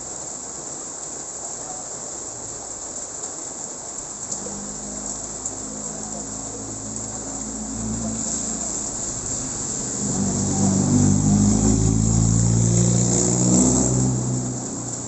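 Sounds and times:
rain hissing on wet road: 0:00.0 - 0:15.0
pickup truck driving past: 0:07.8 - 0:15.0.

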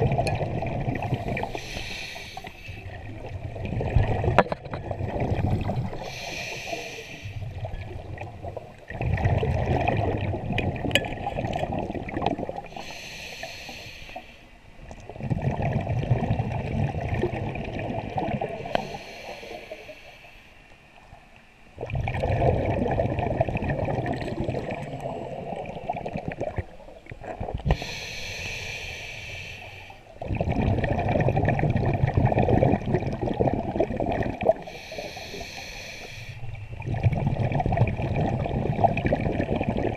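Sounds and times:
gurgling exhaled bubbles: 0:00.0 - 0:12.9, 0:15.0 - 0:19.2, 0:21.8 - 0:28.0, 0:30.1 - 0:35.4, 0:36.4 - 0:39.9
diver inhaling through regulator: 0:01.0 - 0:03.0, 0:05.8 - 0:07.6, 0:12.6 - 0:14.6, 0:18.6 - 0:20.6, 0:27.7 - 0:30.1, 0:34.5 - 0:36.5.

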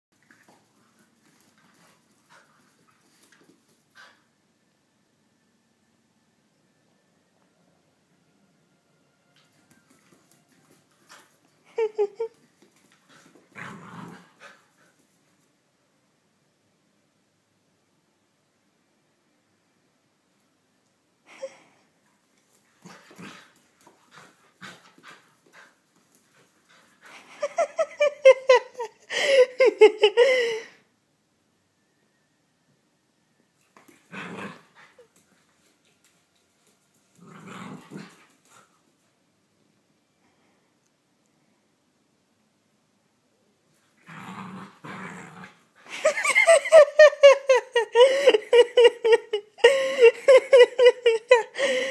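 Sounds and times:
paws scuffling on tile floor: 0:00.2 - 0:04.3, 0:09.4 - 0:15.5, 0:22.3 - 0:27.6, 0:33.6 - 0:39.1
puppy play-growling: 0:00.2 - 0:04.3, 0:11.0 - 0:15.0, 0:22.6 - 0:27.6, 0:33.8 - 0:35.7, 0:36.9 - 0:38.9, 0:43.7 - 0:46.8.

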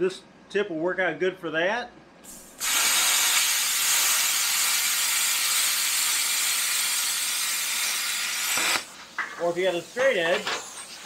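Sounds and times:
plasma cutter hissing: 0:02.3 - 0:11.0.

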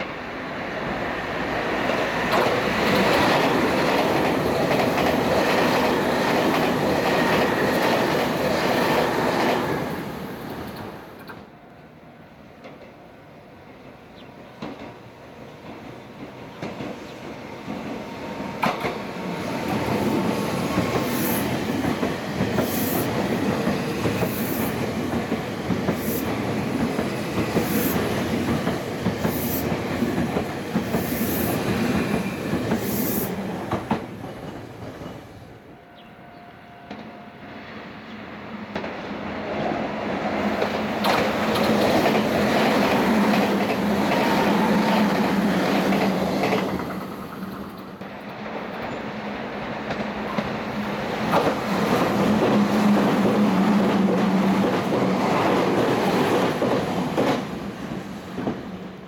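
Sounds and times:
train passing with low hum: 0:00.0 - 0:59.0
wheels clacking over rail joints: 0:40.4 - 0:49.0.

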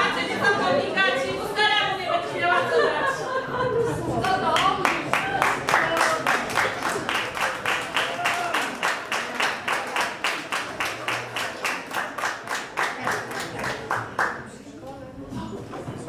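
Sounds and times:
audience clapping in time: 0:04.6 - 0:14.5.

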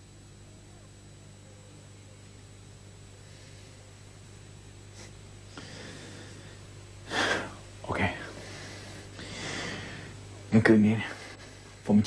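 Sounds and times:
low electrical hum: 0:00.0 - 0:12.0
even hiss: 0:04.9 - 0:12.0.

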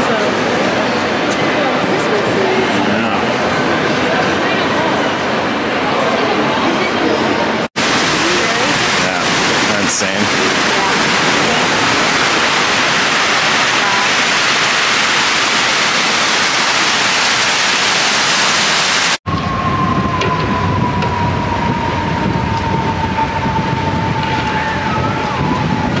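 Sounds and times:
water cascading: 0:07.8 - 0:19.2
low city rumble: 0:19.3 - 0:26.0.

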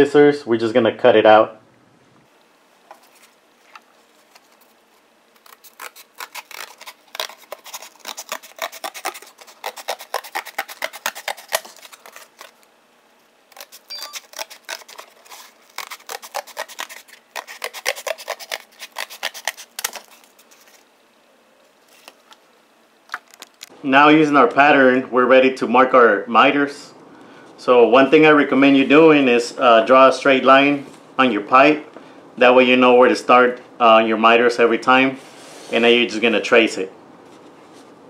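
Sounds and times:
scissors cutting cardboard: 0:05.4 - 0:12.6, 0:13.5 - 0:20.8.

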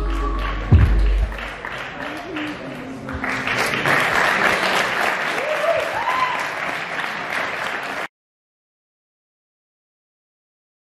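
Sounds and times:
audience applauding and cheering: 0:00.0 - 0:08.1
person whooping: 0:05.4 - 0:06.5.

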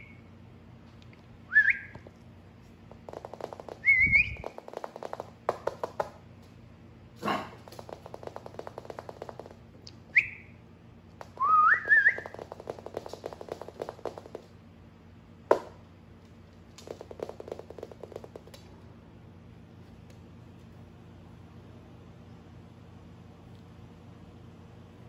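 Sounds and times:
puppy claws clicking on floor: 0:01.9 - 0:06.6, 0:07.2 - 0:10.2, 0:11.1 - 0:14.6, 0:15.5 - 0:18.9
person whistling: 0:11.4 - 0:12.2.

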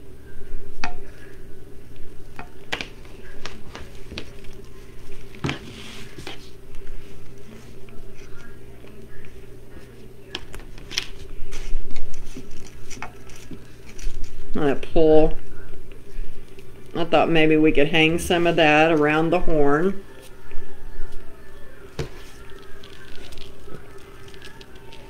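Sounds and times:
steady low hum: 0:00.0 - 0:25.0
mesh rustling and crinkling: 0:21.9 - 0:25.0.

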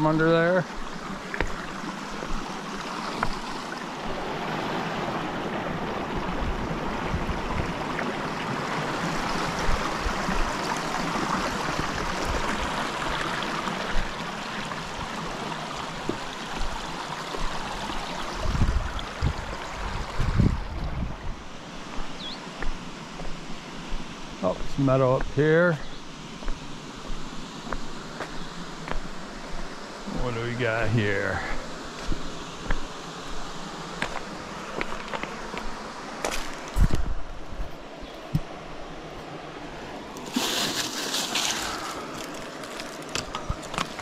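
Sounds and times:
creek water rushing over rocks: 0:00.0 - 0:44.0.

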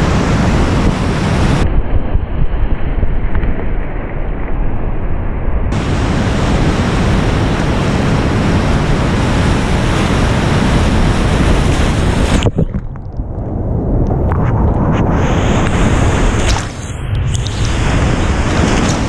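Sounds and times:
wind buffeting microphone: 0:00.0 - 0:04.8, 0:05.7 - 0:19.0
whitewater rapids rushing: 0:05.8 - 0:12.7.

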